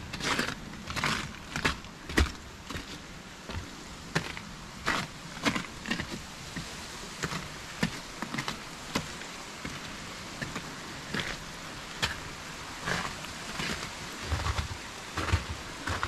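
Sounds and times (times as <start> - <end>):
footsteps crunching on snow: 0.0 - 16.0
steady background hiss: 0.0 - 16.0.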